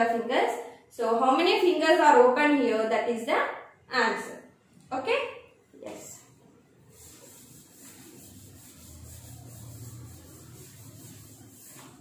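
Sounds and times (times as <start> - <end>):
eraser rubbing on blackboard: 6.8 - 12.0.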